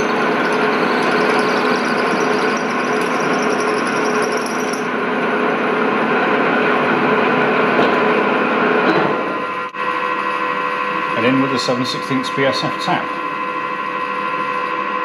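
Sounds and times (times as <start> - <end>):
milling machine drilling metal: 0.0 - 4.9.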